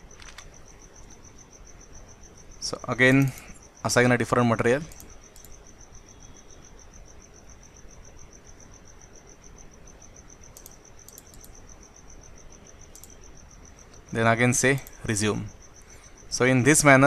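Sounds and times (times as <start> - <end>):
background hiss: 0.0 - 17.0
soft clicks: 0.2 - 0.5, 4.8 - 5.6, 10.5 - 11.6, 12.9 - 13.2.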